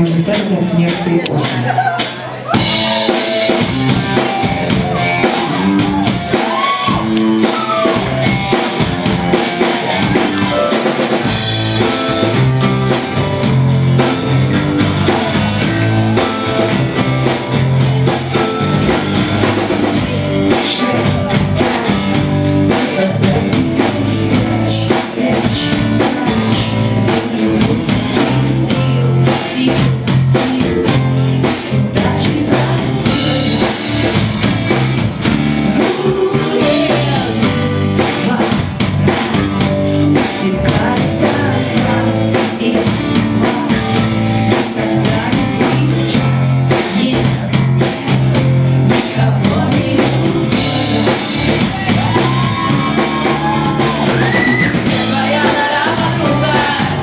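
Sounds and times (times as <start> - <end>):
live rock band playing: 0.0 - 57.0
woman singing: 19.7 - 34.2, 35.6 - 57.0.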